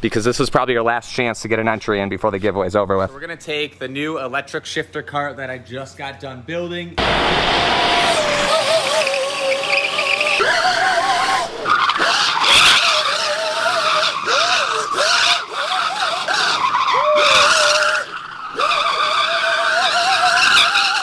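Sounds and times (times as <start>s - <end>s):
tyres squealing on asphalt: 7.0s - 21.0s.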